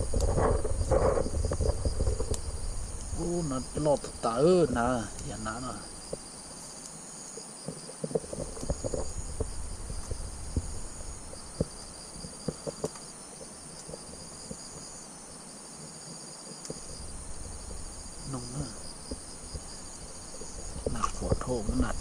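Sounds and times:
insects chirping: 0:00.0 - 0:22.0.

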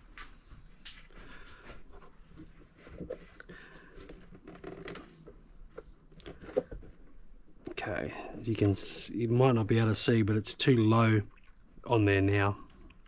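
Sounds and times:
clicks and rustles in plastic hull: 0:00.9 - 0:07.8.

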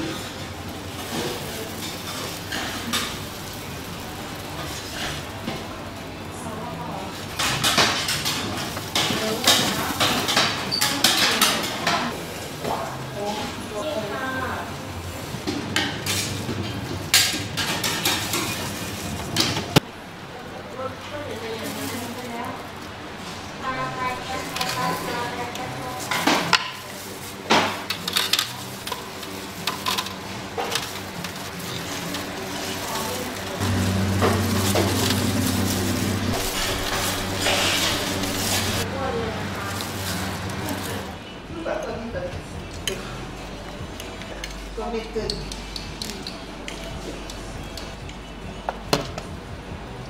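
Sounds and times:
rustling: 0:26.8 - 0:41.1.

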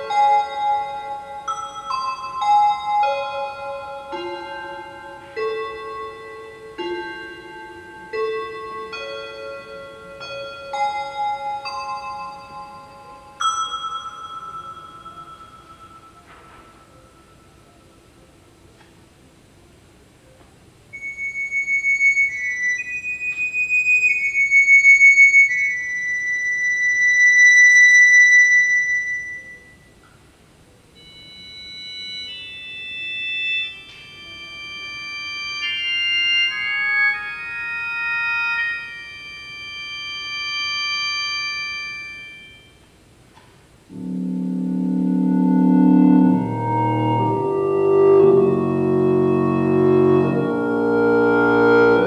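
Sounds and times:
high synthesized organ-like tones: 0:43.9 - 0:52.0
low synthesized chord: 0:43.9 - 0:52.0.

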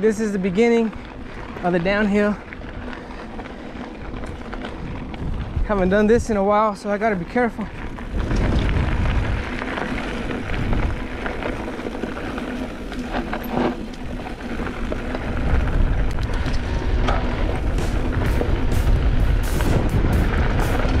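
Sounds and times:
bike tyres crunching on dirt: 0:00.0 - 0:21.0
wind on microphone: 0:02.5 - 0:06.5, 0:07.6 - 0:12.2, 0:14.0 - 0:21.0.

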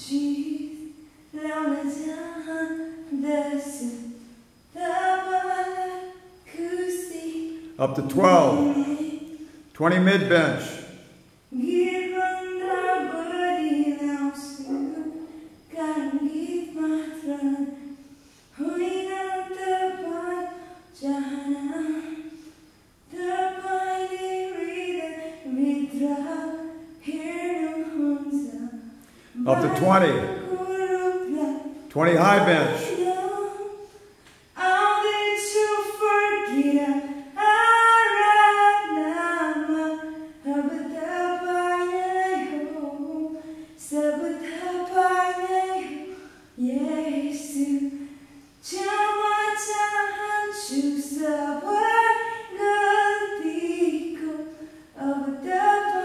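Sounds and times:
woman singing unaccompanied: 0:00.0 - 0:09.7, 0:11.5 - 0:22.4, 0:23.0 - 0:56.0
woman singing held notes: 0:06.9 - 0:09.4, 0:11.6 - 0:16.1, 0:29.3 - 0:31.6.

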